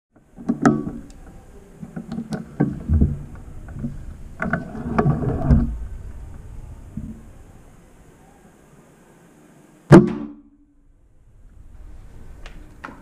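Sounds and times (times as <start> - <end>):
bow knocking and rattling: 0.2 - 7.7.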